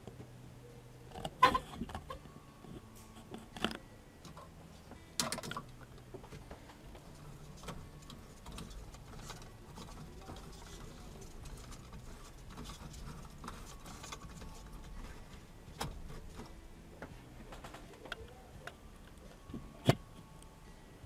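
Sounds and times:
handling clicks and knocks: 0:05.2 - 0:20.3.

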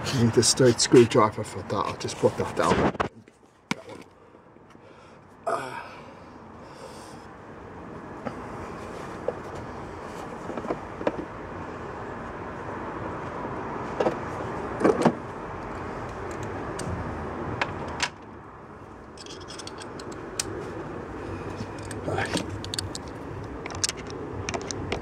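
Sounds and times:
steady background rumble: 0:00.0 - 0:25.0
tools and plastic parts clicking: 0:19.2 - 0:20.6, 0:21.6 - 0:25.0.

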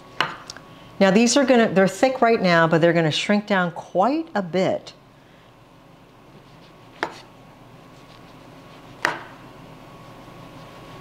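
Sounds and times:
knife slicing mushroom: 0:07.0 - 0:07.3.

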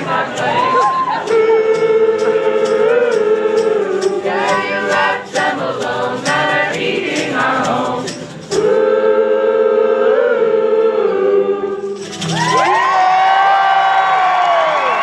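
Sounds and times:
sharp percussive beats: 0:00.0 - 0:08.8
group singing a cappella: 0:00.0 - 0:12.2.

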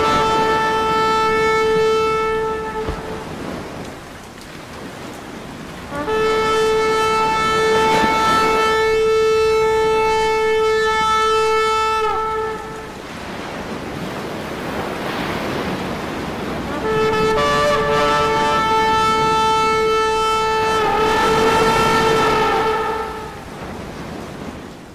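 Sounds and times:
steady horn-like tone: 0:00.0 - 0:03.8, 0:05.9 - 0:13.2, 0:16.6 - 0:23.8
higher note: 0:16.7 - 0:23.4.

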